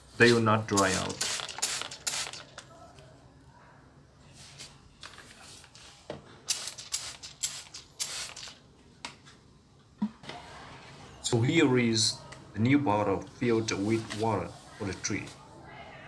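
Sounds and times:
spray bottle squirting: 0:00.7 - 0:02.6, 0:06.5 - 0:08.6.

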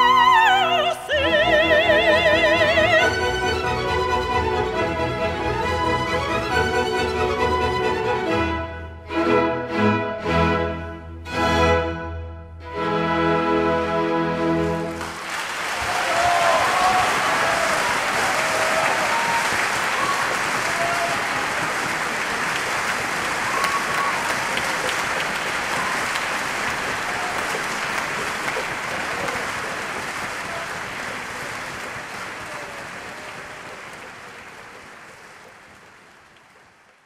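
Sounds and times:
audience applauding: 0:14.9 - 0:37.0.

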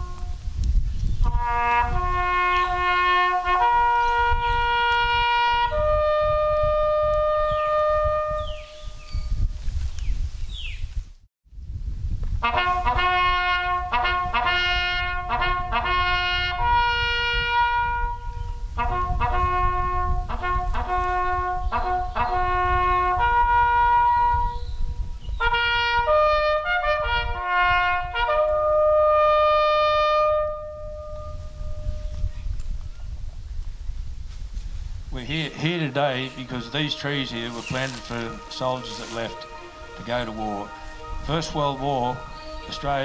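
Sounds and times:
solo trumpet bugle call: 0:00.0 - 0:00.6, 0:01.2 - 0:09.2, 0:12.4 - 0:24.8, 0:25.4 - 0:32.3, 0:35.5 - 0:43.0.

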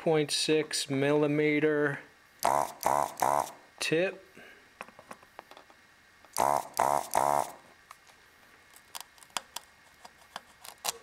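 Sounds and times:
desoldering pump buzzing: 0:02.4 - 0:03.6, 0:06.3 - 0:07.7.

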